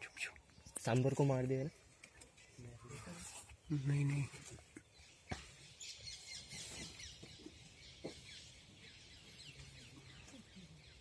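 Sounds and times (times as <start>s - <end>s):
high bird chirps: 4.8s - 11.0s.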